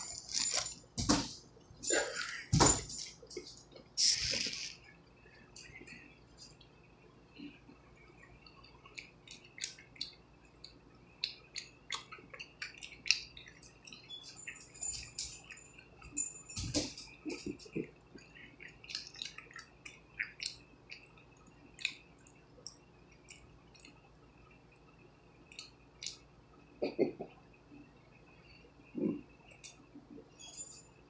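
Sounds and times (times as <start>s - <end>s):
person chewing with mouth clicks: 8.3s - 14.0s, 17.2s - 24.0s.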